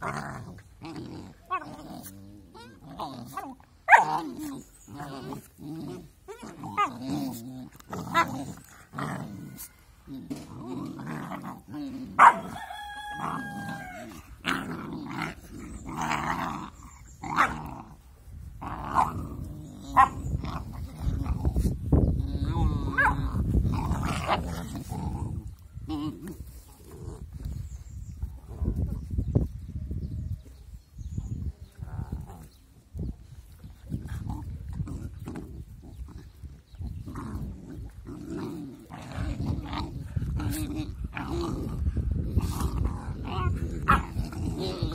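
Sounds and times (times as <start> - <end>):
puppies growling: 0.0 - 29.6, 30.9 - 44.9
puppy whining: 2.4 - 2.8
puppies yipping: 12.1 - 14.1.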